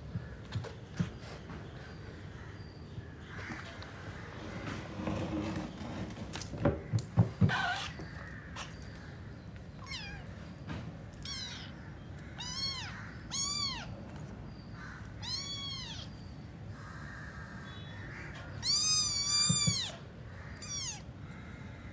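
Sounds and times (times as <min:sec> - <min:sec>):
kittens meowing: 0:09.8 - 0:10.4, 0:11.1 - 0:14.0, 0:15.0 - 0:16.4, 0:18.6 - 0:21.3.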